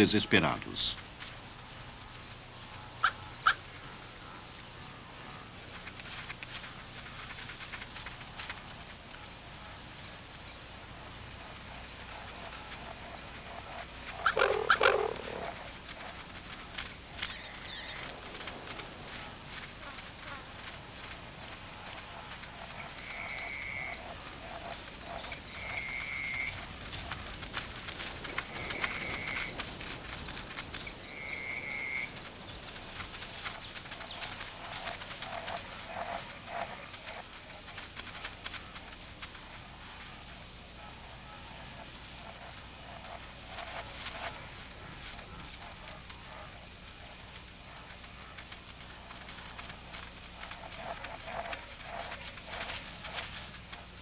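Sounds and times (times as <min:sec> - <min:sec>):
crackling and rustling: 0:00.0 - 0:54.0
loud animal cry: 0:13.7 - 0:16.1.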